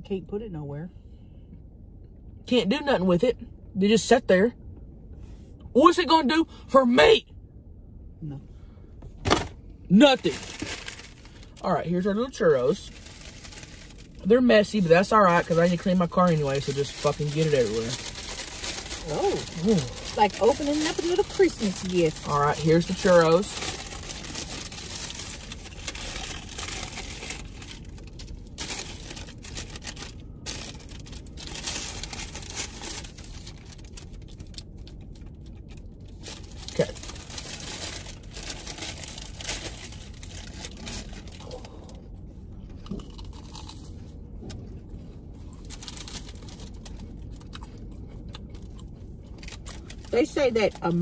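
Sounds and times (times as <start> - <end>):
waxed paper crinkling: 10.2 - 11.6, 12.8 - 14.2, 15.3 - 41.8, 45.4 - 47.4
chewing and crunching: 15.4 - 51.0.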